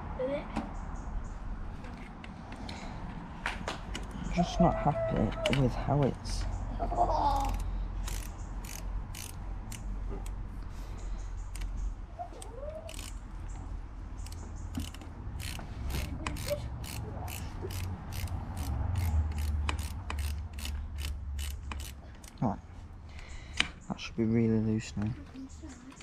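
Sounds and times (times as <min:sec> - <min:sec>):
ratchet wrench clicking: 0:07.3 - 0:10.4, 0:11.4 - 0:13.2, 0:14.2 - 0:22.4.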